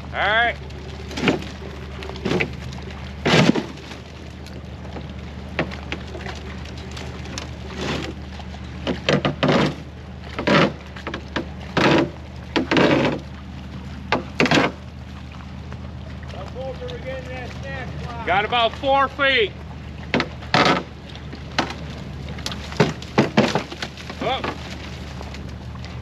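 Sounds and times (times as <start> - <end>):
truck engine idling: 0.0 - 26.0
stove dragged through brush and snow: 7.6 - 8.2.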